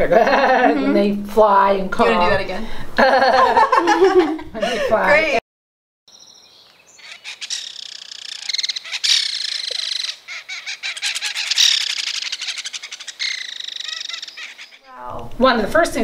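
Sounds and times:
kingfisher rattling call: 6.9 - 14.9.

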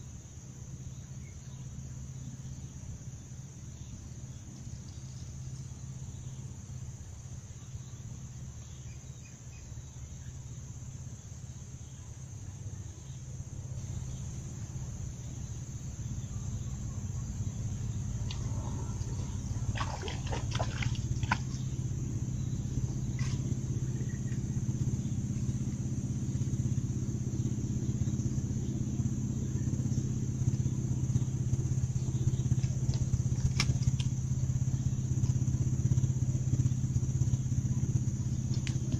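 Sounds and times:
tug engine humming: 12.3 - 38.9.

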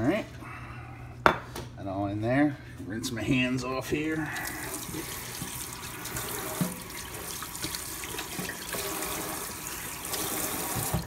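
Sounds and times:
tap running into steel sink: 10.6 - 11.0.

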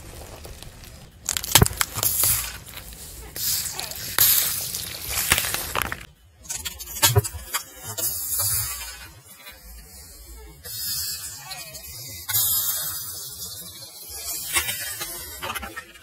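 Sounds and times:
plastic cracking: 0.0 - 6.1
tyre crushing plastic bottles: 0.0 - 6.1.

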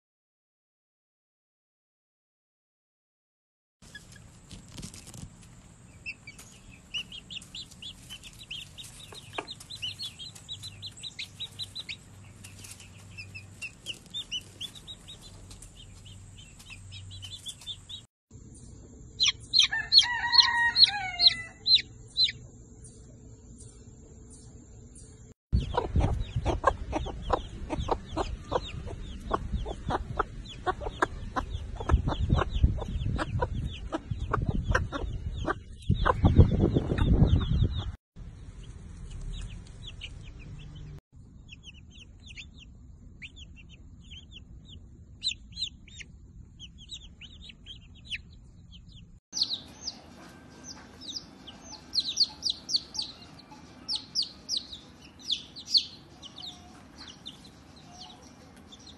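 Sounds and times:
chicks peeping: 3.8 - 58.9
hens clucking: 6.0 - 18.0, 25.6 - 37.9.

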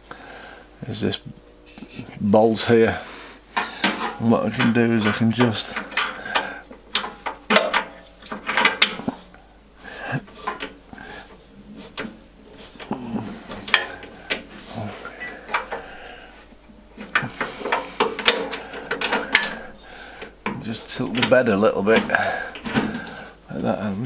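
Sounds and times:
spanner clinking on metal bolt: 3.6 - 9.2, 13.6 - 15.9, 17.0 - 20.6.

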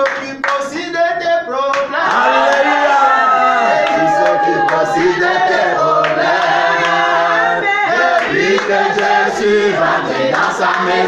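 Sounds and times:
hand claps: 0.0 - 0.6, 8.2 - 9.2
group singing without instruments: 1.8 - 11.0.

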